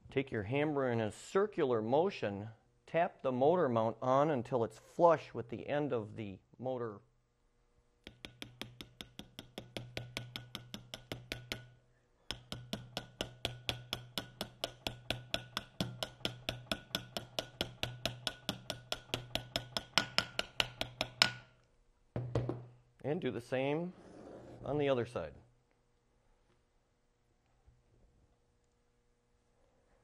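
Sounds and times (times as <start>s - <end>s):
hammer tapping: 8.0s - 21.5s.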